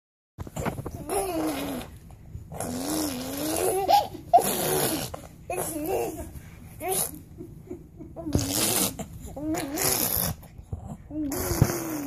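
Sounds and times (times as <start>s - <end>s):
baby cooing and babbling: 0.9s - 1.9s, 2.6s - 7.2s, 8.3s - 12.0s.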